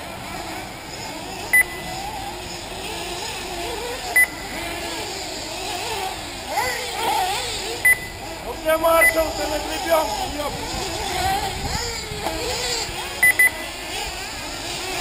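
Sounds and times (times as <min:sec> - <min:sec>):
model car engines buzzing: 0:00.0 - 0:15.0
short electronic beeps: 0:01.5 - 0:01.9, 0:04.2 - 0:04.5, 0:07.8 - 0:08.2, 0:09.0 - 0:09.2, 0:13.2 - 0:13.6.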